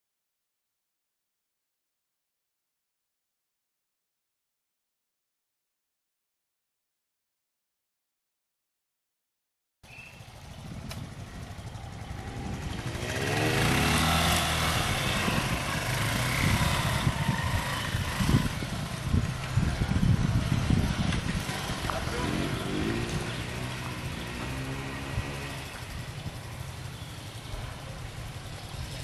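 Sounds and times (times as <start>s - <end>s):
motorcycle engine revving: 10.1s - 29.0s.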